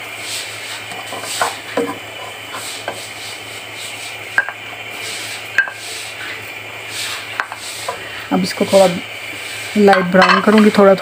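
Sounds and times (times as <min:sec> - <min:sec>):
oil sizzling: 0:00.0 - 0:11.0
spoon scraping and knocking pan: 0:00.6 - 0:08.9, 0:09.8 - 0:10.8
spoon tapping on pan: 0:01.1 - 0:02.3, 0:04.4 - 0:04.6, 0:05.6 - 0:05.8, 0:09.9 - 0:10.5.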